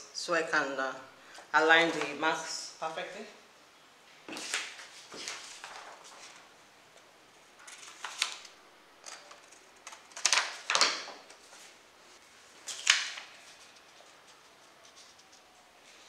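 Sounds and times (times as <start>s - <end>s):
paper rustling on wooden table: 4.3s - 6.5s.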